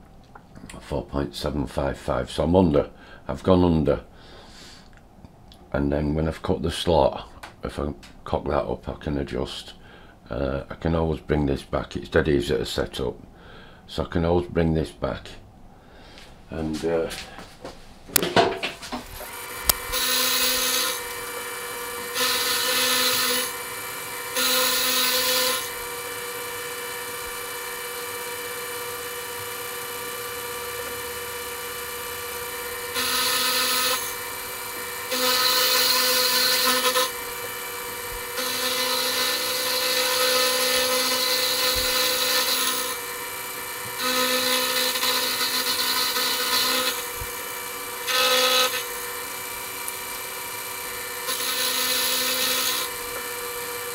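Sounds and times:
cutter cutting metal: 19.2 - 53.9
machine tool humming: 19.2 - 53.9.

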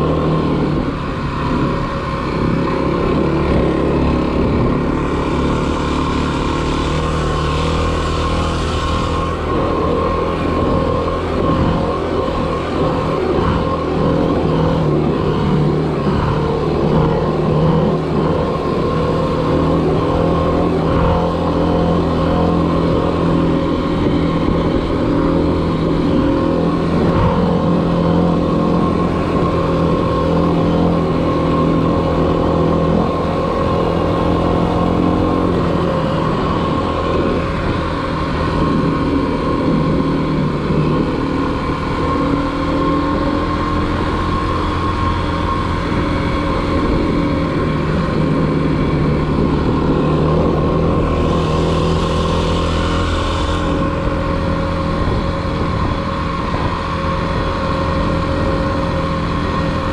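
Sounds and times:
dirt bike engine running: 0.0 - 59.9.

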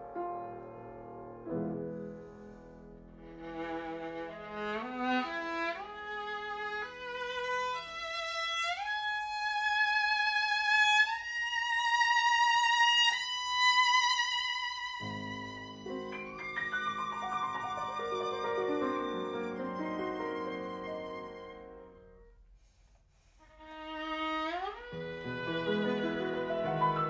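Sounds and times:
piano chords: 0.0 - 5.1, 15.0 - 22.4, 24.8 - 27.0
viola bowed notes: 3.1 - 22.4, 23.5 - 27.0.

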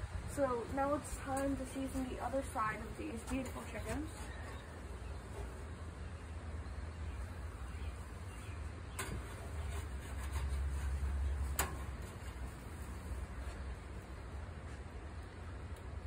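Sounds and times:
gas grill rumble: 0.0 - 16.0.

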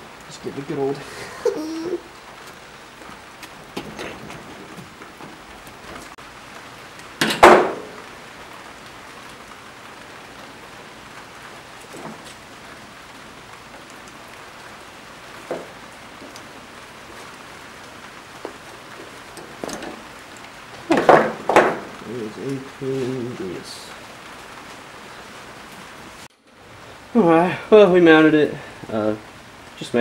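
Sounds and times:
soft knocks: 3.7 - 6.2, 20.9 - 21.9.

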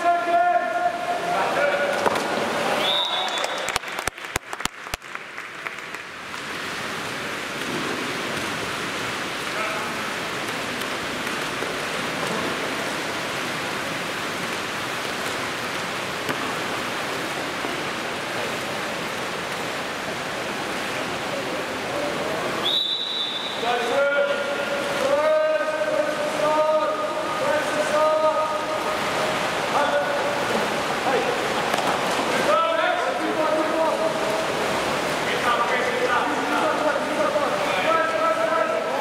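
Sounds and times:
swimmers splashing water: 0.0 - 39.0
referee's whistle: 2.8 - 3.8, 22.6 - 23.6.

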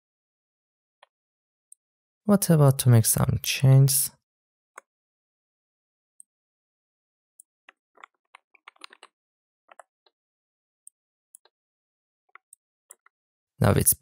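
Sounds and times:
faint computer keyboard keystrokes: 8.0 - 9.1.

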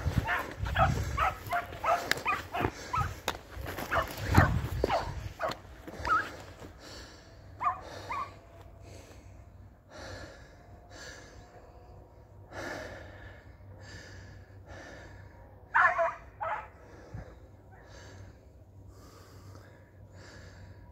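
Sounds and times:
dog breathy puffs: 0.0 - 6.4
dog yelping: 0.2 - 3.2, 3.9 - 6.3, 7.6 - 8.3, 15.7 - 16.7.

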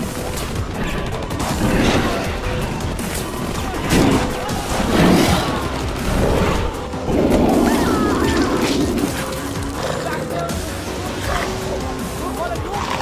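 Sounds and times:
gunfire: 0.0 - 9.5
dramatic music: 0.0 - 13.0.

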